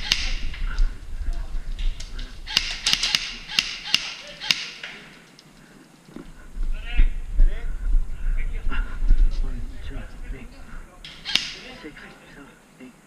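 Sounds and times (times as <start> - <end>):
airsoft gunshots echoing: 2.5 - 5.2, 11.1 - 11.8.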